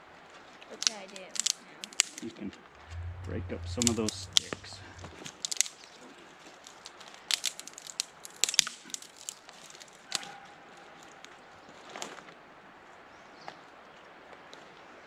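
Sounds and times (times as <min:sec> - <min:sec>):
dry sticks snapping: 0:00.7 - 0:02.3, 0:03.0 - 0:05.9, 0:06.6 - 0:10.4.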